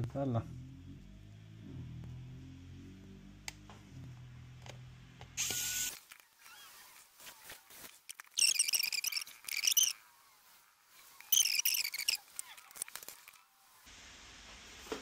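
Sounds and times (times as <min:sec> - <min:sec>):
electric screwdriver motor running: 0:05.4 - 0:06.0.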